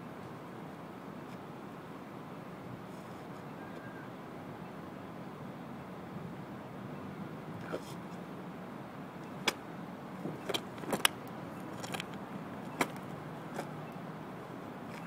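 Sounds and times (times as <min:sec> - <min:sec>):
low outdoor hum: 0:00.0 - 0:15.0.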